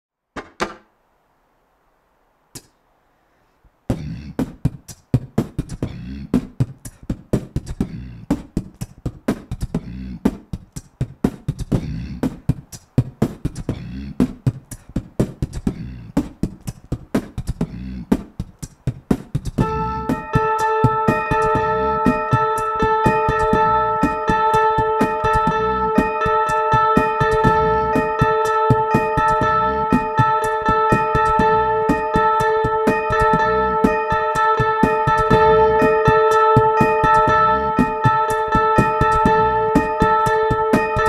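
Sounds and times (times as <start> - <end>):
kick and snare beat: 3.9 - 41.0
sustained guitar notes: 19.6 - 41.0.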